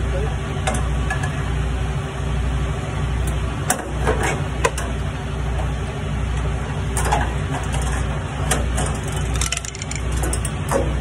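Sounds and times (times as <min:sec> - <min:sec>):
steady low hum: 0:00.0 - 0:11.0
hand tools clinking on metal: 0:08.8 - 0:10.6.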